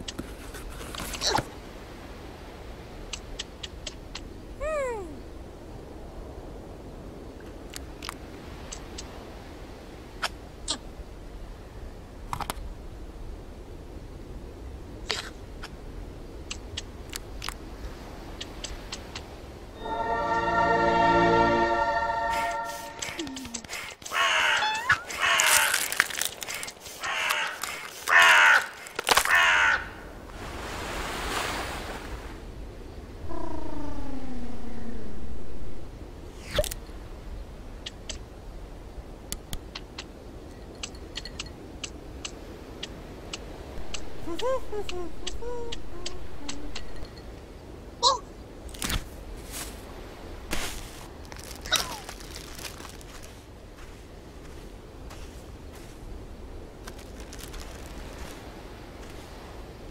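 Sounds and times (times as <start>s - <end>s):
background hiss: 0.0s - 59.9s
long downward sliding call: 19.8s - 23.6s, 43.9s - 47.0s
cartoon clicks and squeaks: 22.8s - 25.7s, 45.2s - 47.0s.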